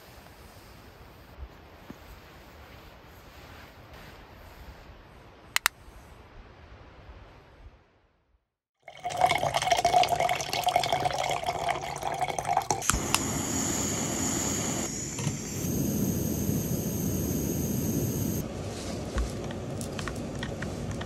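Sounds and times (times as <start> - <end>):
sharp click: 5.6 - 5.8
water pouring with gurgle: 8.8 - 13.0
gas stove burning hiss: 12.8 - 18.7.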